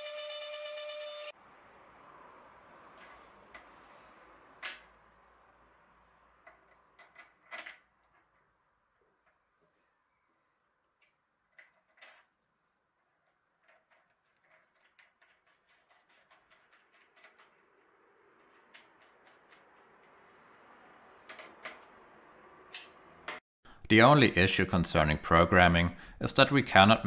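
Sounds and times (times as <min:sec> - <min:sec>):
metal parts knocking: 0:13.2 - 0:20.5.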